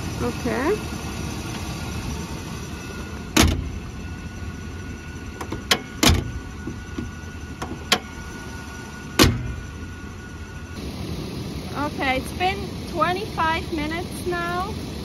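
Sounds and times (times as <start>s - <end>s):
steady low rumble: 0.0s - 15.0s
truck hood knocking shut: 3.4s - 3.7s, 5.4s - 8.1s, 9.2s - 9.6s.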